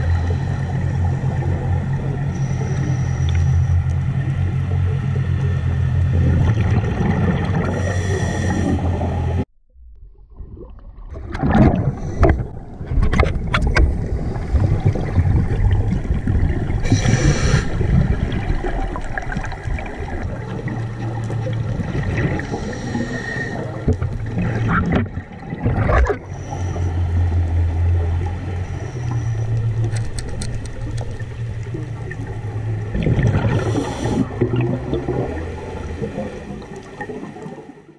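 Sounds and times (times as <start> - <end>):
low underwater rumble: 0.0 - 37.9
exhaled bubbles: 6.1 - 9.4, 10.0 - 26.8, 28.0 - 37.9
diver regulator breathing: 7.6 - 9.1, 16.8 - 18.0, 22.2 - 24.0, 26.2 - 27.6, 33.4 - 34.4.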